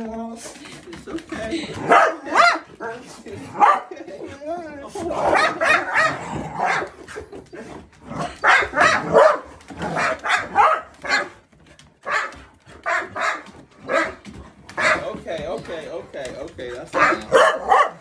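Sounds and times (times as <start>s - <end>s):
dogs barking: 1.5s - 4.1s, 5.1s - 7.3s, 8.1s - 15.1s, 16.8s - 18.0s.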